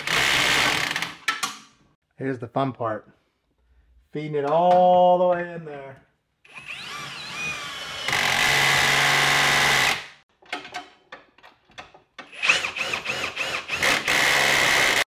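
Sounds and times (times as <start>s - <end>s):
power drill whining: 6.5s - 10.0s, 12.2s - 15.0s.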